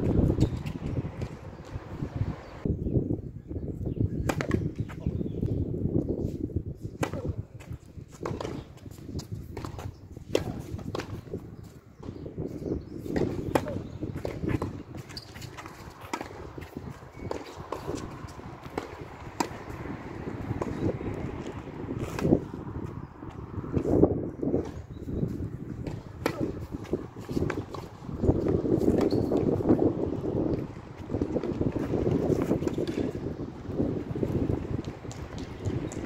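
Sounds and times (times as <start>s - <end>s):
wind on microphone: 0.0s - 36.0s
tennis ball struck by rackets: 4.2s - 4.7s, 9.5s - 11.2s, 13.1s - 22.4s, 25.8s - 29.9s
tennis ball bouncing on court: 13.0s - 22.4s, 25.8s - 29.9s, 31.2s - 33.2s.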